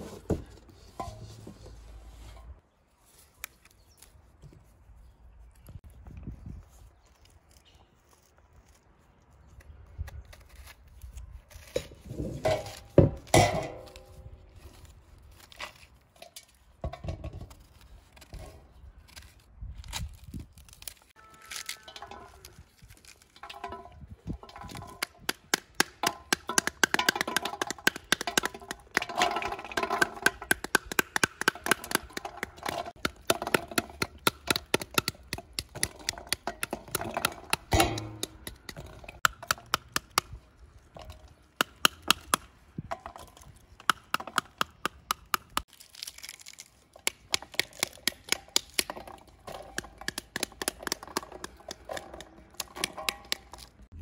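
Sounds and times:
pomegranate peel cracking: 9.4s - 12.0s, 17.5s - 23.6s, 43.2s - 54.0s.

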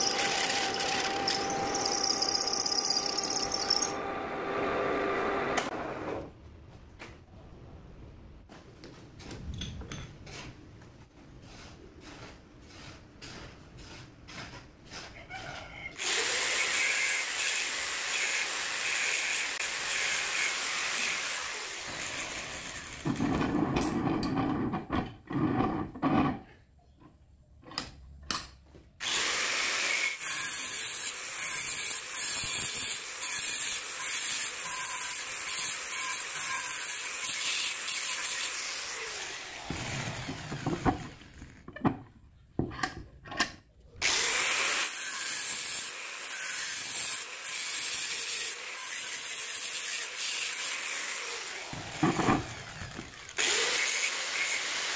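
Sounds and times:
metalworking power tools running: 0.0s - 6.2s, 16.0s - 23.3s, 44.0s - 54.9s
clicks and knocks handling metal: 40.6s - 43.7s.

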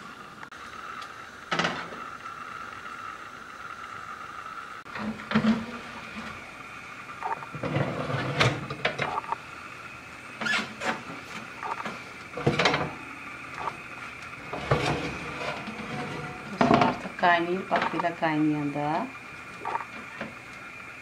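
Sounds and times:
steady high hum: 0.0s - 21.0s
metal tray scraping on oven rack: 7.6s - 8.7s, 14.4s - 17.0s.

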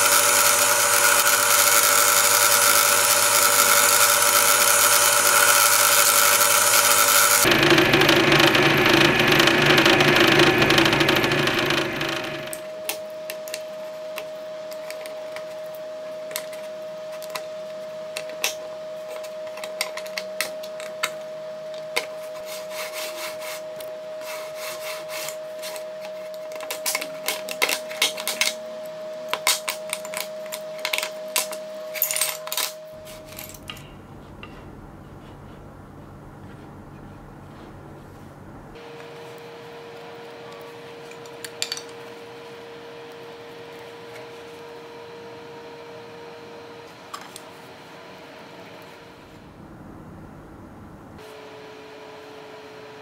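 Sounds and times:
drill press motor running: 0.0s - 12.7s.

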